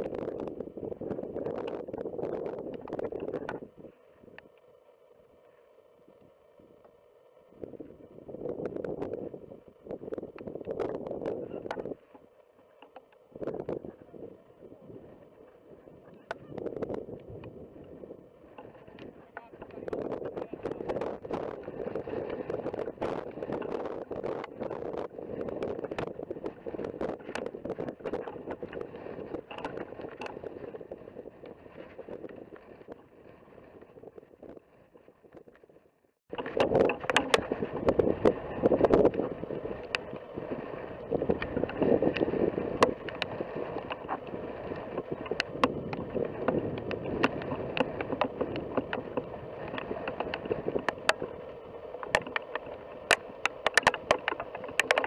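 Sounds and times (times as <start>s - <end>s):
wind blowing on microphone: 0.0s - 4.5s, 7.5s - 12.2s, 13.3s - 55.0s
sharp clicks: 52.0s - 55.0s.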